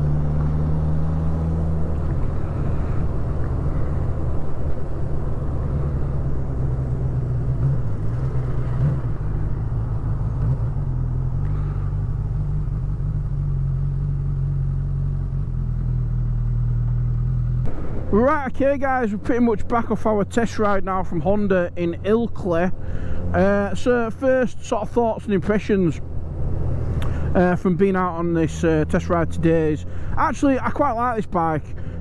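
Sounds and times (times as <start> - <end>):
motorcycle engine running: 0.0 - 18.0
wind and road noise: 0.0 - 32.0.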